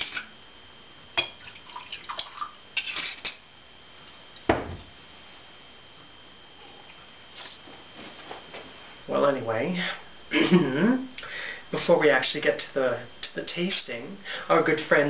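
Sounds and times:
wine pouring: 1.2s - 3.0s
bottle thud on wooden board: 4.5s - 4.9s.

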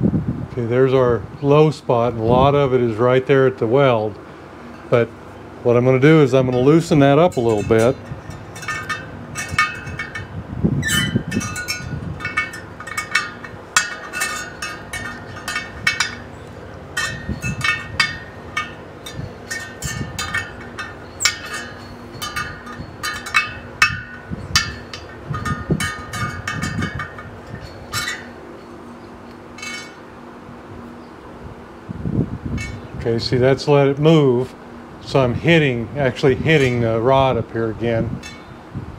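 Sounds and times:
spoke wrench clinking on spokes: 6.1s - 30.1s, 32.6s - 32.9s, 37.9s - 38.6s.

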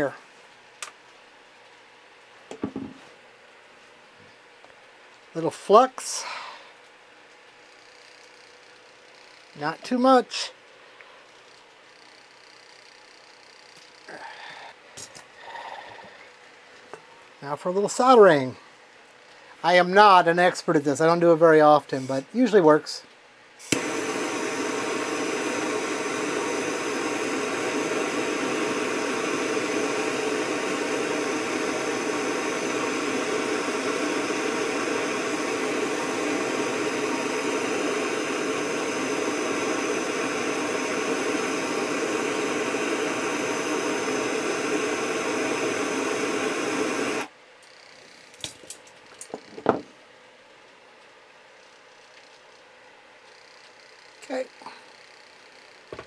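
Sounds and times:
torch flame hissing: 14.0s - 14.8s, 23.6s - 47.3s.

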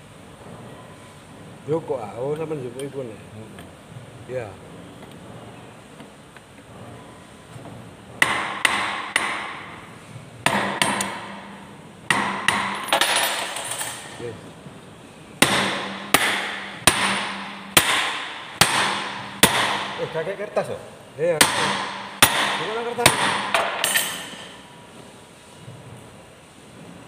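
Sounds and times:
hammer striking steel: 8.2s - 9.8s, 10.4s - 14.0s, 15.4s - 20.2s, 21.4s - 24.7s.

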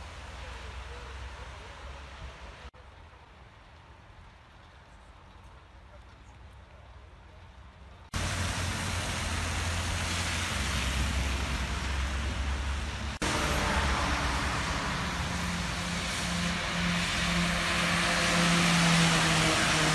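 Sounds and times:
rain and tyres hissing on wet road: 0.0s - 19.9s
low engine hum: 8.1s - 19.9s
lorry engine approaching: 8.2s - 19.9s.

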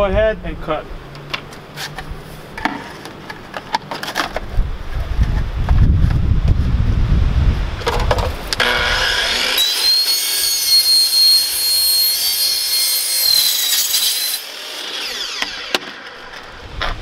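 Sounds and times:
wind rumble on microphone: 4.4s - 9.2s, 16.5s - 17.0s
miter saw whining: 8.6s - 16.6s
saw cutting vinyl: 8.6s - 16.6s.

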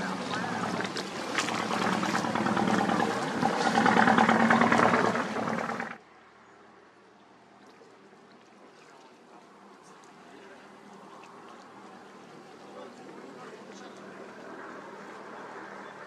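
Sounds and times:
boat engine running: 0.0s - 6.0s
water churning: 0.0s - 6.0s.

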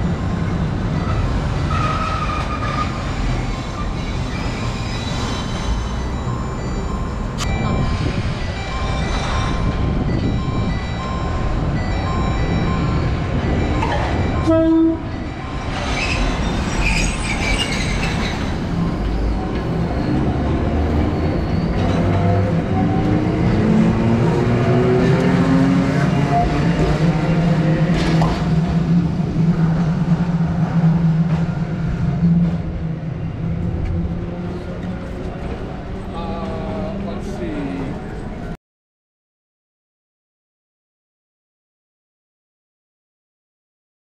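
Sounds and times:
wheels squealing: 0.9s - 11.0s, 12.2s - 23.8s
tram horn: 12.5s - 16.3s.

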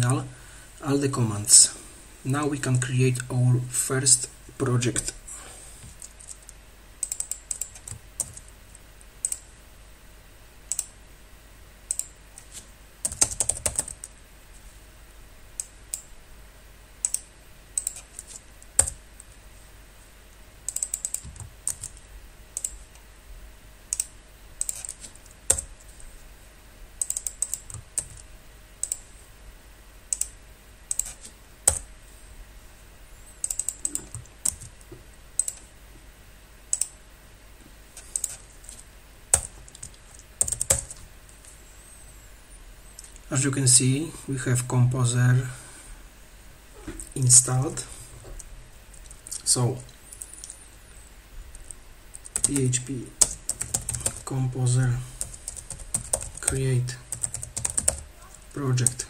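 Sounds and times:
keyboard typing: 5.9s - 8.5s, 9.2s - 9.4s, 10.7s - 10.9s, 11.9s - 14.1s, 17.0s - 19.0s, 20.6s - 22.9s, 23.9s - 25.8s, 27.0s - 29.0s, 30.1s - 31.9s, 33.4s - 34.8s, 35.4s - 35.7s, 36.7s - 37.0s, 38.0s - 41.0s, 51.6s - 54.3s, 55.2s - 59.0s.

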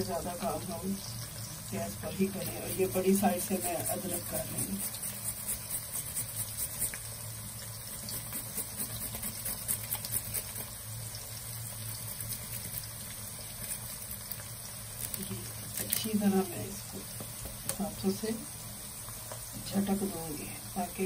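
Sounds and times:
onions sizzling in oil: 0.0s - 21.0s
ginger rasped on grater: 2.2s - 7.2s, 7.8s - 10.8s.

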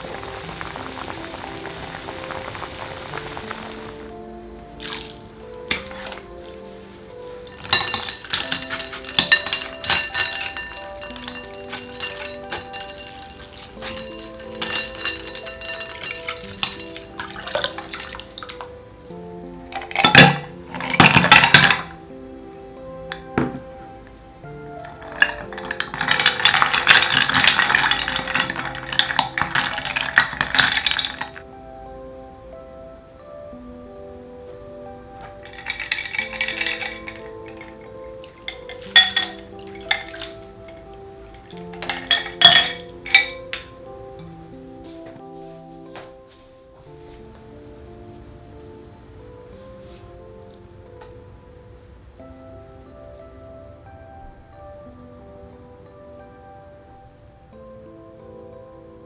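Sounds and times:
background music: 0.0s - 59.0s
utensils clinking on glass bowl: 4.8s - 18.7s, 19.7s - 22.0s, 24.8s - 31.4s, 35.2s - 43.7s.

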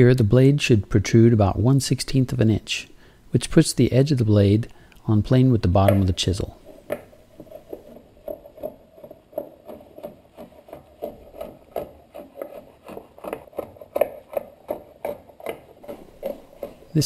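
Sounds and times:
chisel plane scraping wood: 6.6s - 17.0s.

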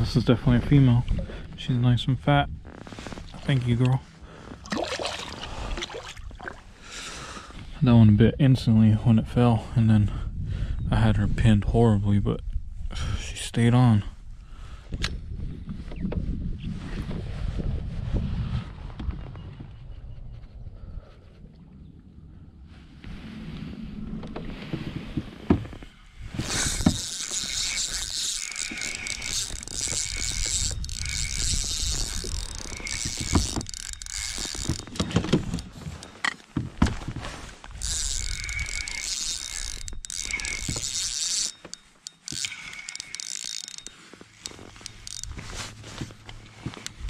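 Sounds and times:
fishing reel whirring: 26.3s - 36.1s, 37.7s - 45.8s.

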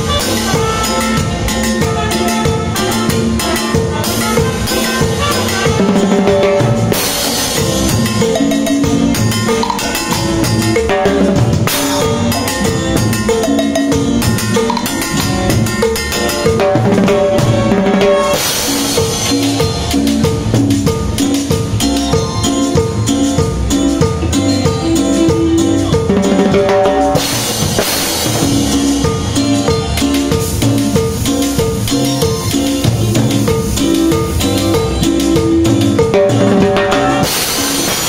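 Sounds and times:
drum and rim hits: 0.0s - 38.0s
latin band music: 0.0s - 38.0s
cymbal crashes: 17.0s - 21.7s, 27.1s - 35.1s, 36.8s - 38.0s.

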